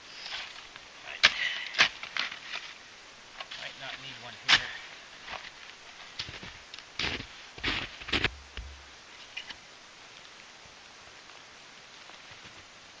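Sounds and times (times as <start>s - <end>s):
boots crunching in snow: 3.5s - 8.7s.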